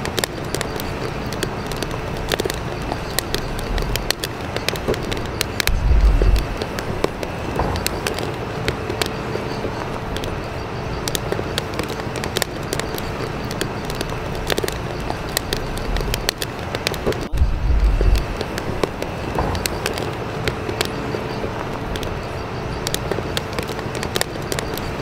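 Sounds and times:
noisy background ambience: 0.0s - 25.0s
sharp clicks and crackles: 0.0s - 25.0s
low rumble: 2.2s - 8.5s, 16.9s - 19.8s.

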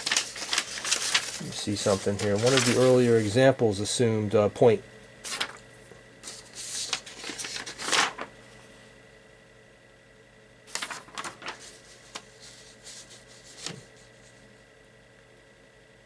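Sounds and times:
paper rustling: 0.0s - 3.4s, 5.2s - 5.6s, 6.2s - 8.4s, 10.7s - 14.4s.

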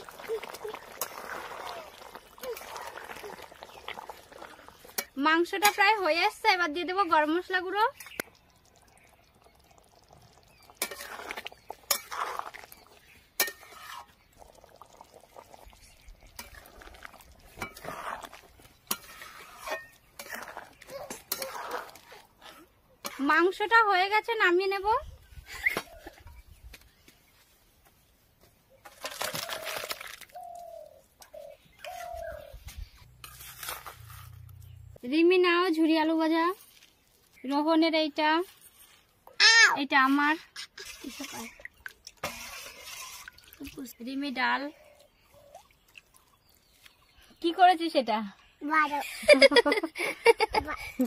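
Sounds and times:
spatula stirring thick curry: 0.0s - 24.2s, 33.0s - 34.9s, 42.2s - 43.3s
metal spatula scraping wok: 10.6s - 14.2s, 16.4s - 23.6s, 33.0s - 35.0s, 40.5s - 41.6s, 42.2s - 43.4s.

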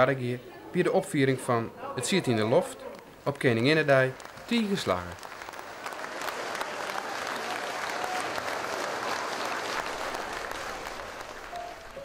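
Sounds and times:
audience applauding: 3.4s - 12.0s.

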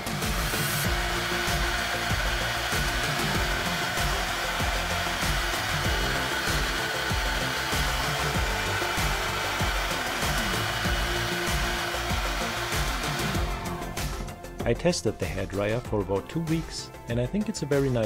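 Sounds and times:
hair dryer blowing air: 0.0s - 14.5s.

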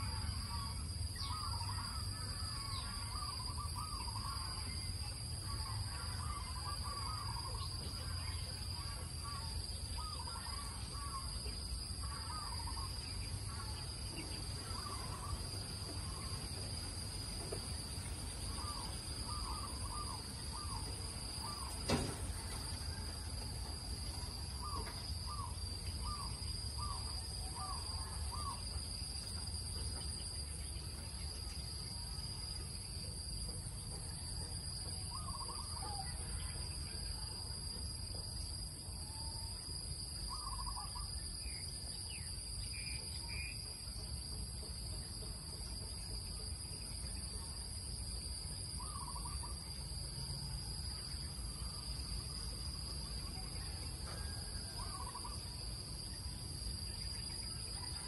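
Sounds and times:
insects droning: 0.0s - 58.0s
birds calling: 12.1s - 22.6s.

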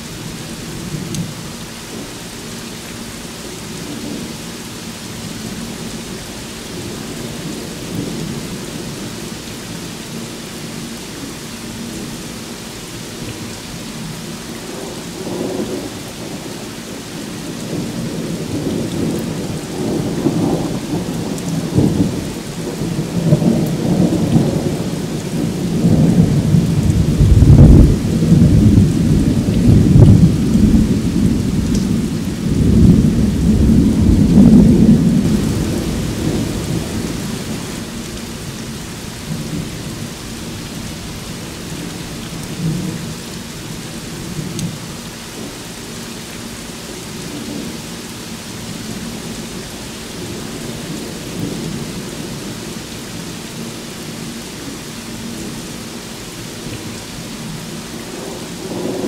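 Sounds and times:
heavy rain falling: 0.0s - 59.0s
thunder rumbling: 17.6s - 43.1s.

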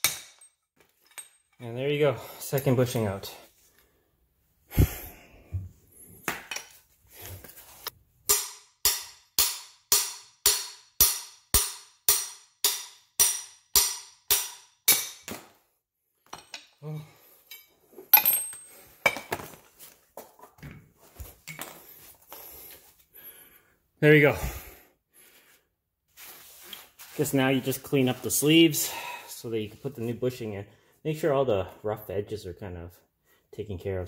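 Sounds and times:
clinks of tools and metal parts: 0.0s - 3.5s, 6.4s - 6.9s, 16.2s - 19.8s, 20.6s - 22.4s.

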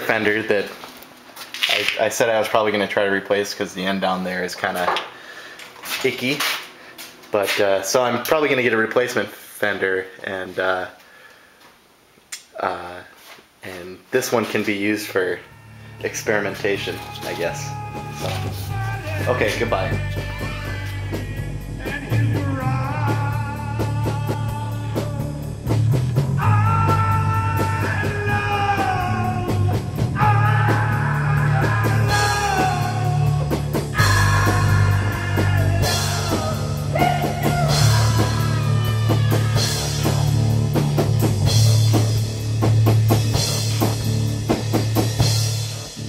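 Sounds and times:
melodic guitar line: 15.3s - 21.8s
drum kit beat: 16.0s - 46.0s.

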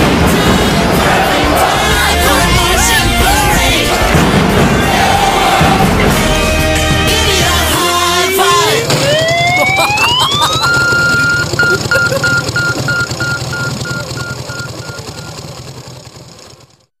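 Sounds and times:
low drone: 0.0s - 12.9s
synth tone sweeping up with echoes: 1.5s - 7.1s.

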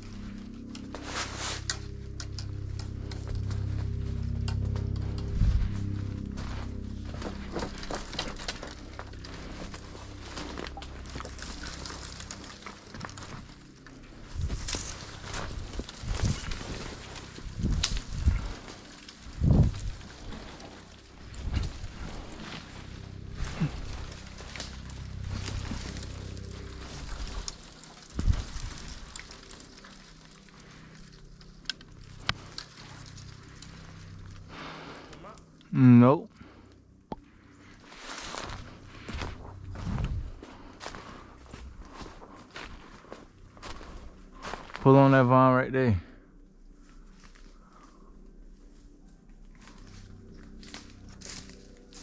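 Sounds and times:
dry leaves and twigs crackling: 0.0s - 52.0s
low steady hum: 0.0s - 52.0s
vine rustling: 0.0s - 52.0s
twig snapping: 7.1s - 22.8s.

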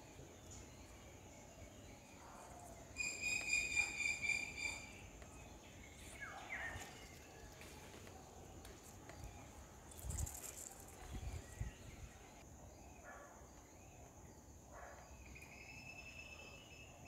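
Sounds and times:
rustle: 4.6s - 12.1s
insect buzzing trill: 9.9s - 11.8s.

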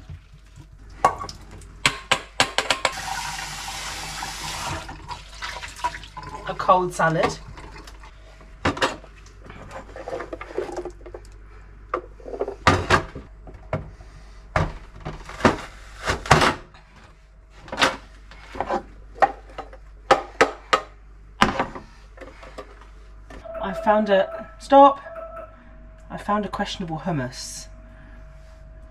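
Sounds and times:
kitchen items knocking and clunking: 0.0s - 3.0s, 11.9s - 13.9s.

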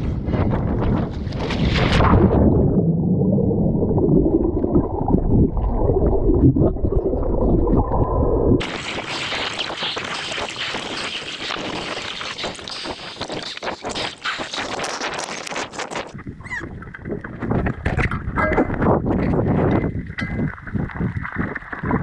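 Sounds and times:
underwater churning and bubbling: 0.0s - 22.0s
crackling underwater hiss: 8.6s - 16.1s.

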